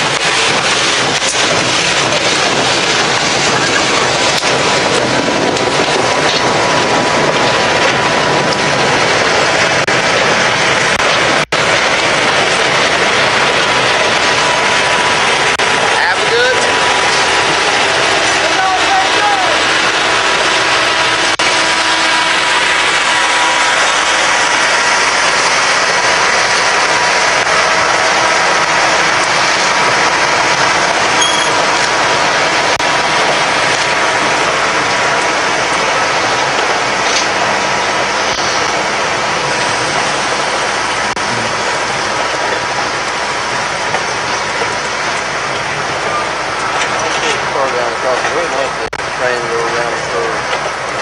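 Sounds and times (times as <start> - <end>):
train wheels rolling on rails: 0.0 - 51.0
high squeak: 31.2 - 31.6.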